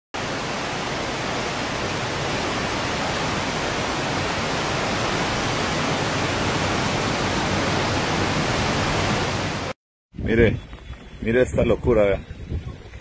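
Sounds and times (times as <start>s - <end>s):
floodwater rushing: 0.2s - 9.8s.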